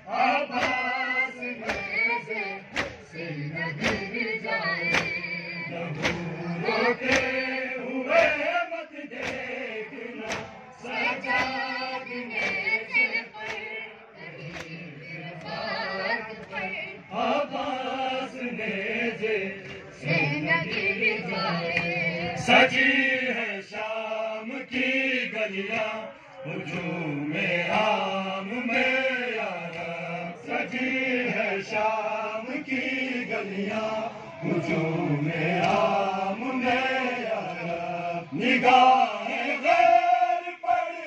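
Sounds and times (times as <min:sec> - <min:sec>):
crowd of men chanting: 0:00.0 - 0:41.0
chest-beating slaps: 0:00.5 - 0:03.1, 0:03.8 - 0:04.2, 0:04.9 - 0:05.3, 0:05.9 - 0:06.4, 0:07.0 - 0:07.5, 0:08.1 - 0:08.4, 0:09.1 - 0:09.6, 0:10.2 - 0:13.8, 0:14.4 - 0:14.8.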